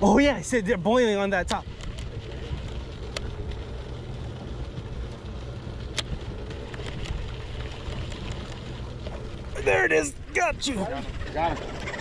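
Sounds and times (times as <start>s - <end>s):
boat engine rumble: 0.0s - 12.0s
wind on microphone: 1.4s - 3.6s.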